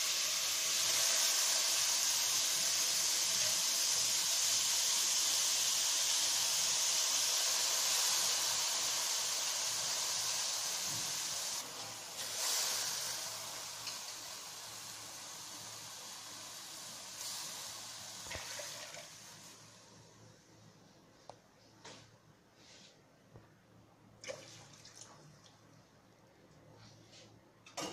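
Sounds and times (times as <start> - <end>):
food sizzling in hot oil: 0.0 - 20.0.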